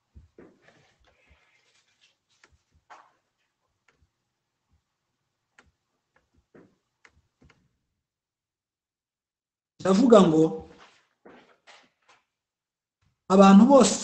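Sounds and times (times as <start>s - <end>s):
faint clicks and taps: 0.1s - 7.8s.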